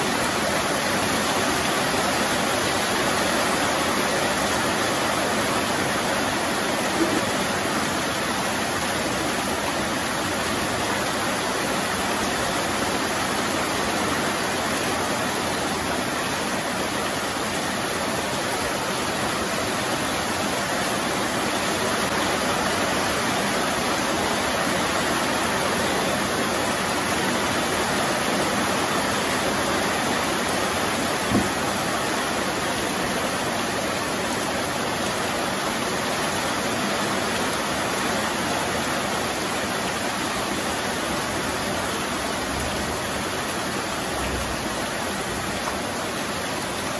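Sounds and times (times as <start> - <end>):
heavy rain falling: 0.0 - 46.9.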